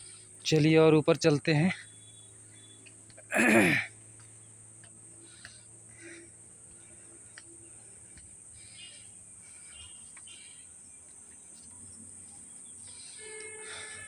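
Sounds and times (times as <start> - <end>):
insects chirring: 0.0 - 14.0
faint bird chirps: 1.6 - 2.9, 5.2 - 14.0.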